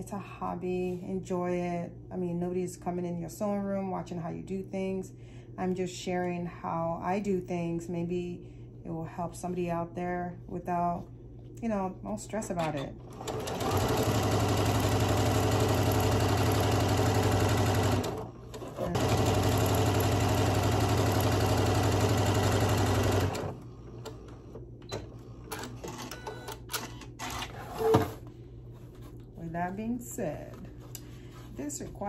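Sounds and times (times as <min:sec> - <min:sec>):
sewing machine stitching: 0:13.1 - 0:23.6.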